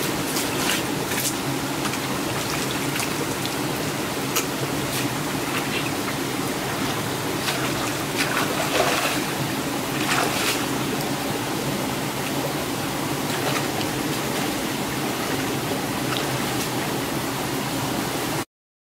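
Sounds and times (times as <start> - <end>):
stream trickling over stones: 0.0 - 17.8
person wading through water: 0.2 - 17.3.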